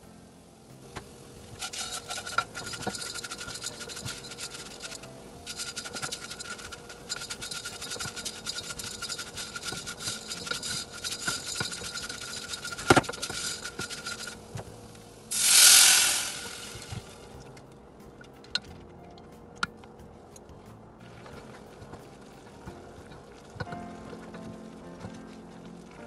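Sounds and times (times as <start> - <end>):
water hissing in hot pan: 0.2 - 17.4
noodles crackling in hot pan: 1.5 - 17.3.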